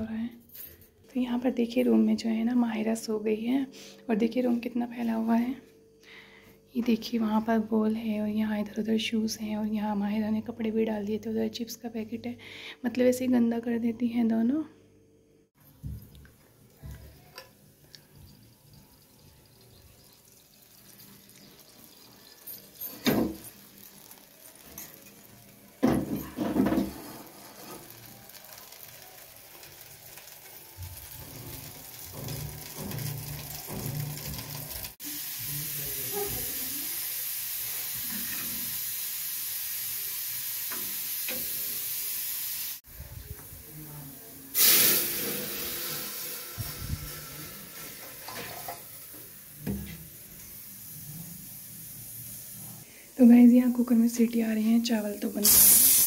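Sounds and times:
pots and lids clattering: 0:21.6 - 0:28.1, 0:31.0 - 0:34.9, 0:44.6 - 0:49.1
steady hiss: 0:34.9 - 0:53.4, 0:54.9 - 0:56.0.

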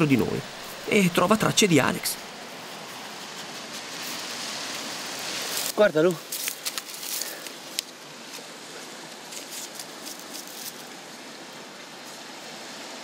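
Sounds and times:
steady outdoor hiss: 0:00.0 - 0:13.0
rustles and clicks of twigs and grit: 0:02.3 - 0:12.4.

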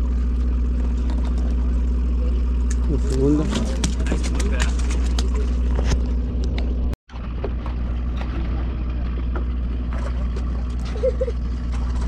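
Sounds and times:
boat engine drone: 0:00.0 - 0:12.0.

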